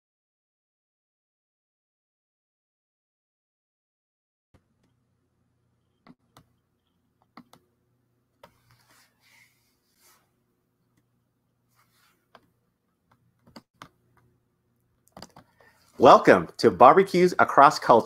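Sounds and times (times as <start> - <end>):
faint steady hum: 4.6 - 17.0.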